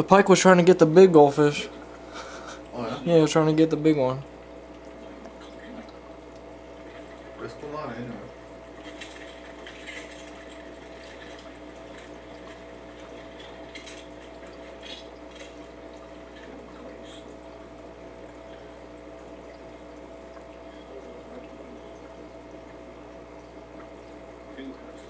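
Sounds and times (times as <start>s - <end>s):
aquarium water bubbling: 0.0s - 25.0s
steady hum: 0.0s - 25.0s.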